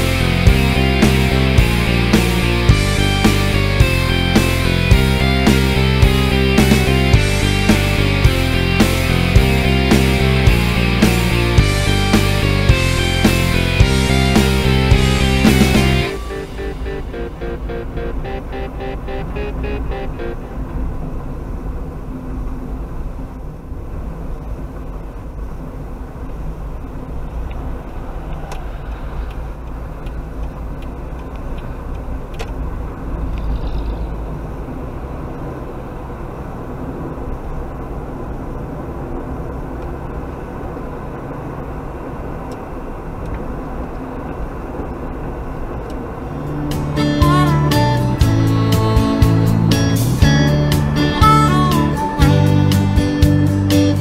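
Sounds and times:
car engine and tyre rumble: 0.0 - 54.0
light ticks: 27.4 - 32.6, 42.5 - 43.4.

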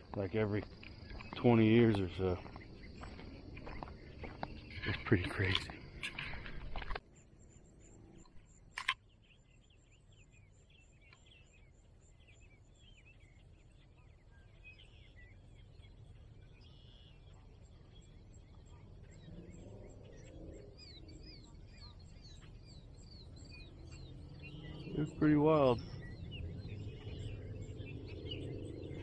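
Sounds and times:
birds chirping: 0.0 - 29.0
sharp click: 8.7 - 9.0.

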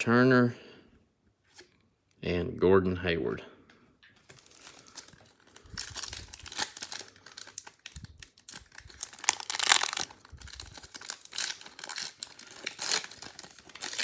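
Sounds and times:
foil wrapper crinkling and tearing: 4.2 - 14.0.

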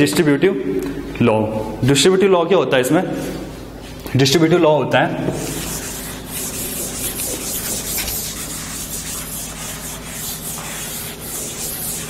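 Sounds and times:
duster rubbing on chalkboard: 5.3 - 12.0.

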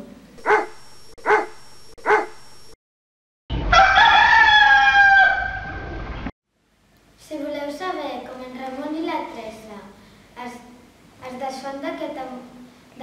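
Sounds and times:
dog barking: 0.4 - 2.4
rooster crowing: 3.6 - 6.0.

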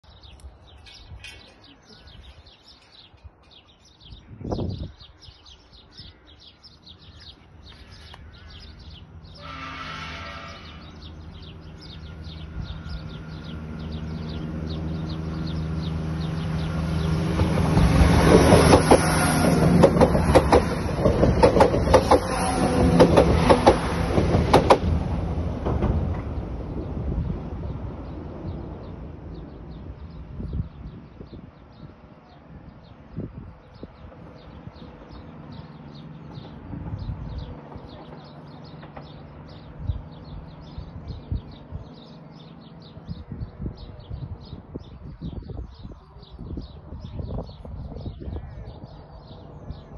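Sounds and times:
birds chirping: 0.0 - 25.4, 26.1 - 49.9
diesel train passing: 5.7 - 45.3, 45.9 - 49.9
wheel clatter over rail joints: 36.2 - 39.7.

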